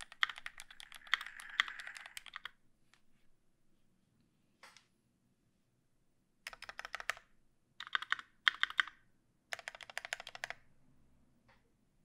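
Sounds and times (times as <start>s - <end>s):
mechanical keyboard typing: 0.0s - 2.6s, 6.5s - 10.6s.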